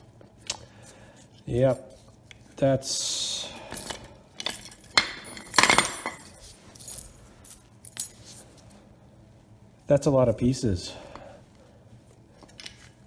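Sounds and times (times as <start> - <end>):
metal parts clattering: 3.7 - 8.2
metal parts clinking and rattling: 3.7 - 8.4.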